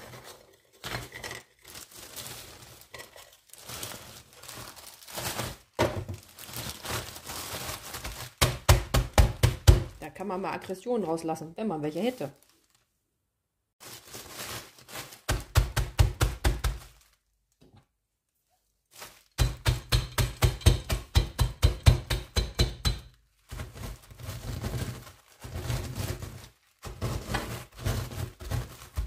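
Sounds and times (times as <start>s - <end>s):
rolling pin knocking cookies in bag: 8.1s - 10.0s, 15.2s - 17.0s, 19.3s - 24.0s.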